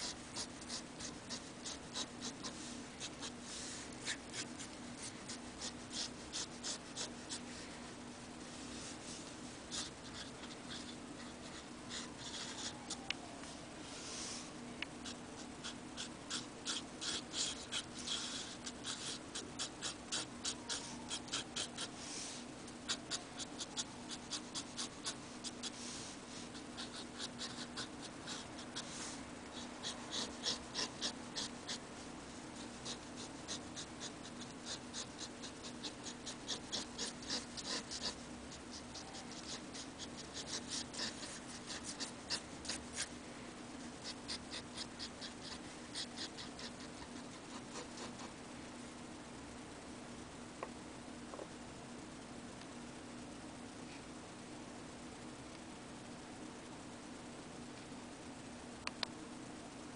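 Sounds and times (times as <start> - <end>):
pen nib scratching on card: 0.0 - 3.4, 4.0 - 7.4, 9.7 - 13.0, 15.0 - 22.0, 22.9 - 25.8, 26.5 - 31.8, 32.6 - 43.1, 44.0 - 48.3
steady low hum: 0.0 - 59.9.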